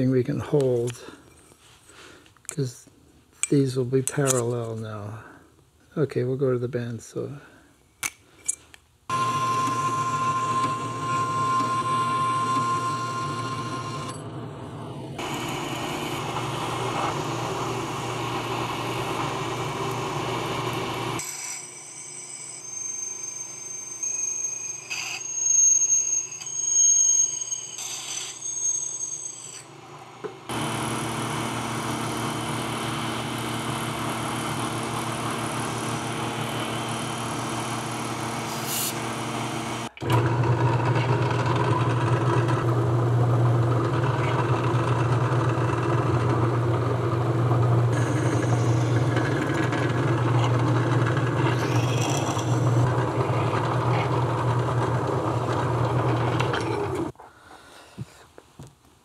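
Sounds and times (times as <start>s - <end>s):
machine tool squeal: 9.1s - 14.3s, 21.1s - 29.8s, 47.9s - 57.1s
motor hum: 9.1s - 21.2s, 29.9s - 57.1s.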